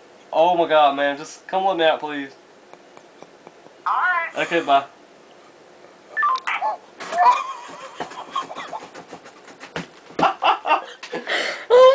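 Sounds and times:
man laughing: 2.8 - 3.8, 4.4 - 4.9, 7.1 - 9.2, 10.2 - 11.9.

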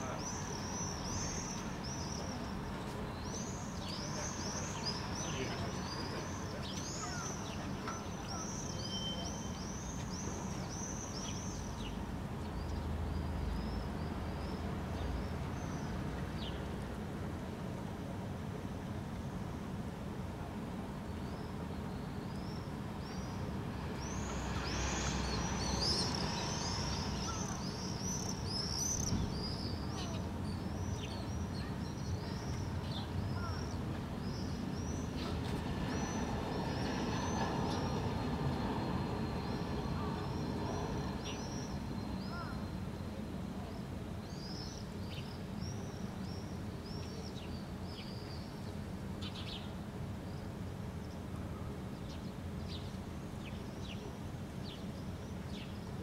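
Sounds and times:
small birds chirping: 0.0 - 16.7, 21.2 - 51.2.

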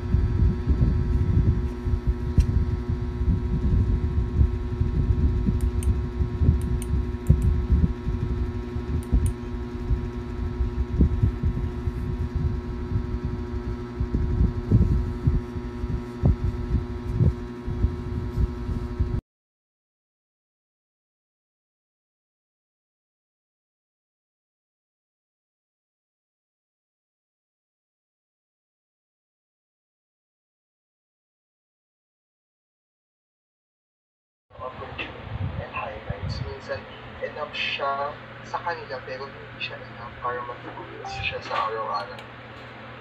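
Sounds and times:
steady electrical hum: 0.0 - 19.2, 34.6 - 43.0.

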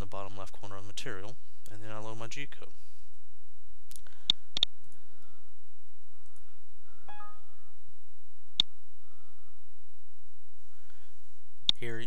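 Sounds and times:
faint multi-pitch tone: 6.9 - 8.8.

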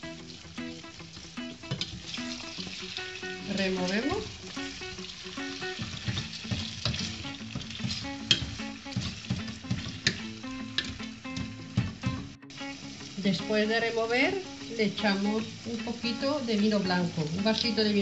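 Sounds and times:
chicken sizzling in oil: 0.0 - 18.0
wooden spatula scraping a pot: 4.6 - 10.2.

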